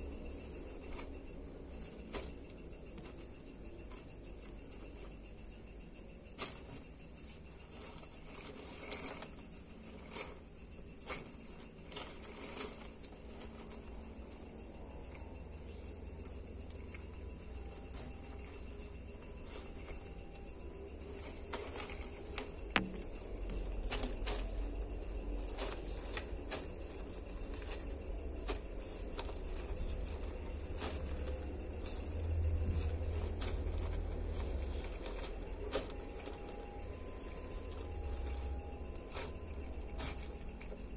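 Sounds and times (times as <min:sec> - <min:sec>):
faint high whine: 0:00.0 - 0:40.9
steady low hum: 0:00.0 - 0:40.9
scratchy rustle: 0:06.4 - 0:40.9.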